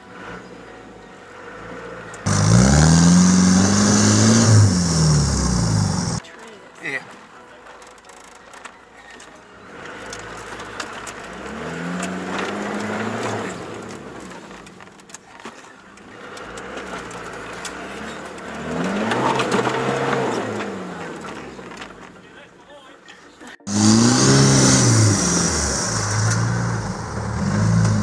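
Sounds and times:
engine revving: 2.2 - 6.2, 11.3 - 14.3, 16.2 - 21.2, 23.7 - 28.0.

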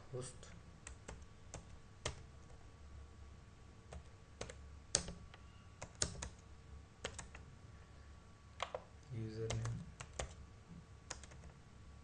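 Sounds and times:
faint low hum: 0.0 - 12.0
keyboard keystrokes: 3.9 - 6.4, 7.0 - 7.4, 8.6 - 8.9, 9.5 - 10.4, 11.1 - 11.6.

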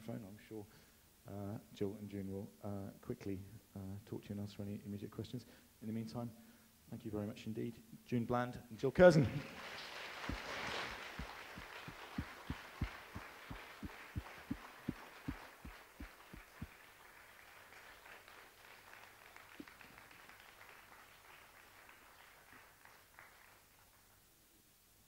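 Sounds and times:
audience applause: 9.4 - 23.6.

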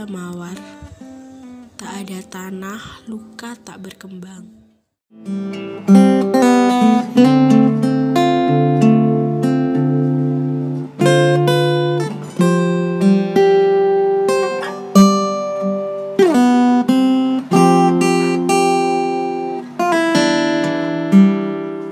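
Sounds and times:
acoustic guitar strumming chords: 5.1 - 21.9.

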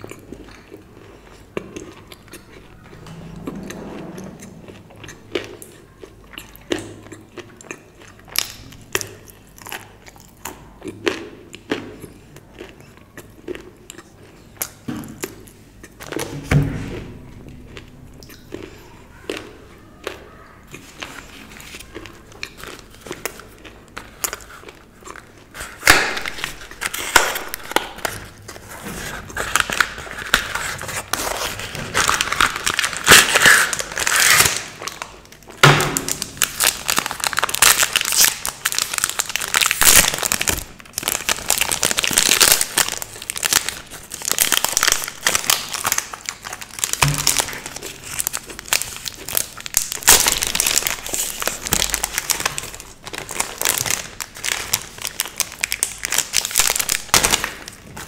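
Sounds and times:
wrapper crinkling and tearing: 20.7 - 58.0.

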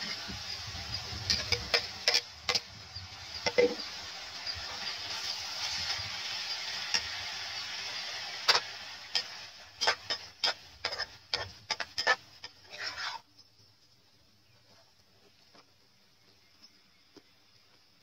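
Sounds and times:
meat and onions sizzling: 0.0 - 13.4
metal spatula scraping pan: 0.9 - 2.7, 8.4 - 13.3.

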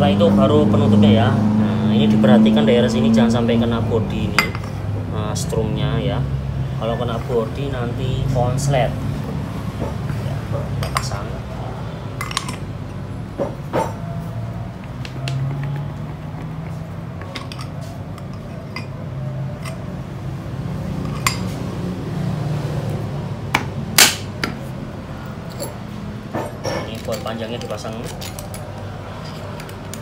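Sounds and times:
metal parts clinking and knocking: 4.4 - 4.8, 10.5 - 11.4, 12.2 - 12.7, 16.4 - 20.0, 21.0 - 21.7, 23.5 - 30.0.

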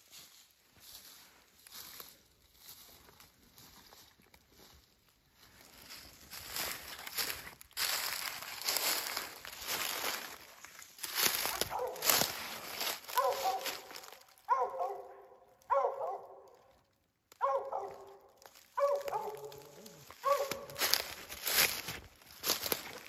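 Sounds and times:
footsteps crunching dry leaves: 0.0 - 23.0
dog barking sharply: 11.5 - 12.1, 13.2 - 13.9, 14.5 - 16.5, 17.4 - 18.2, 18.8 - 20.8.

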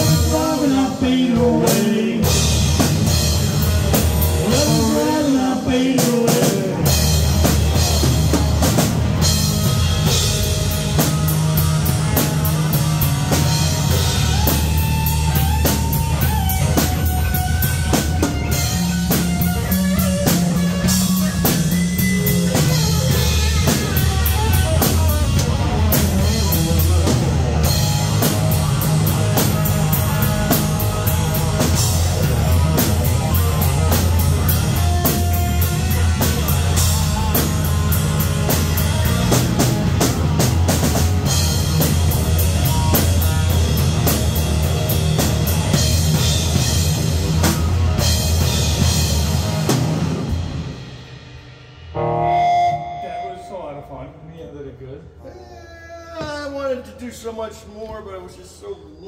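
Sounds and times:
rock band playing instrumental: 0.0 - 53.9.

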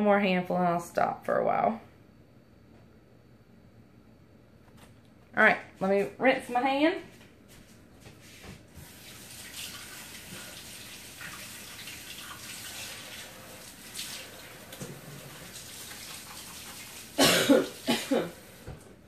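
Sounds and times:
tap water running: 8.4 - 19.0.

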